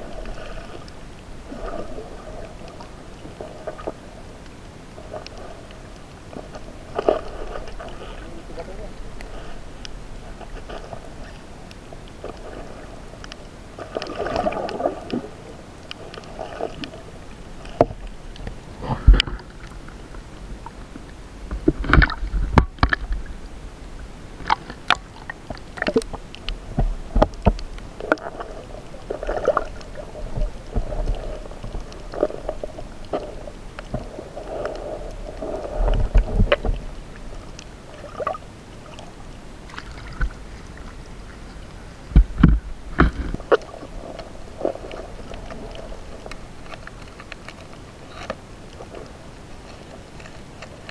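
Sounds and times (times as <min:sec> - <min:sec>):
seawater sloshing and splashing: 0:13.7 - 0:19.8.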